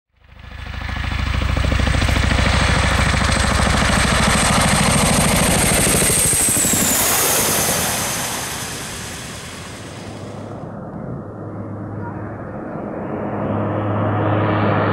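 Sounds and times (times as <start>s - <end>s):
helicopter rotor beat: 0.2s - 12.0s
turbine engine whine: 0.2s - 14.9s.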